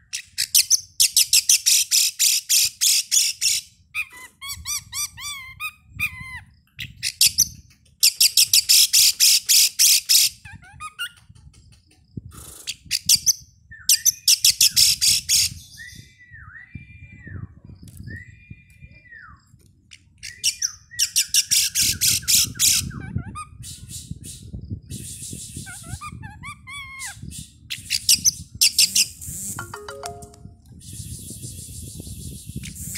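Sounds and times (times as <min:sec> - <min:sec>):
bird scratchy trilling: 0:27.8 - 0:29.6.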